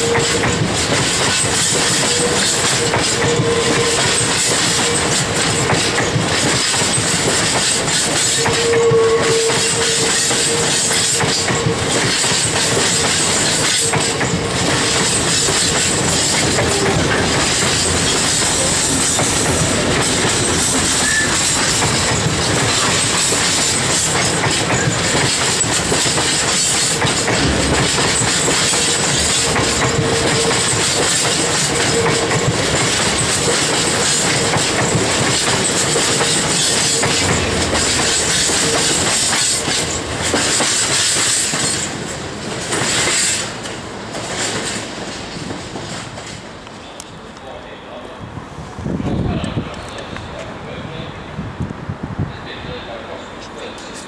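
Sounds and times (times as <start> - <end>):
train wheels clattering over rail joints: 0.0 - 46.6
faint wheel squeal: 21.0 - 21.5.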